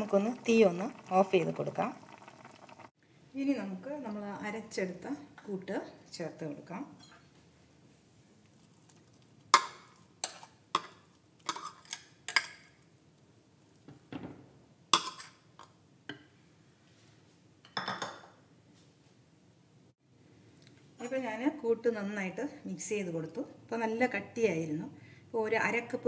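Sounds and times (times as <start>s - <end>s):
spoon scraping pot: 9.6s - 12.6s, 15.0s - 15.4s.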